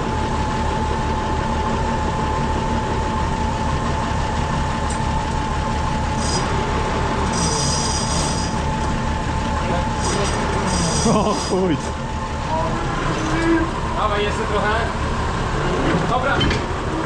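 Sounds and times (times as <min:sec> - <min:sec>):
tractor engine rumbling: 0:00.0 - 0:17.0
high-pitched metallic squeals: 0:06.1 - 0:08.7, 0:09.9 - 0:11.9, 0:12.6 - 0:13.8.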